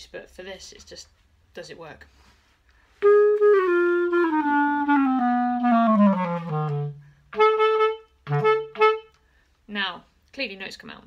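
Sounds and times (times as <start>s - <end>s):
clarinet notes: 3.0s - 9.2s.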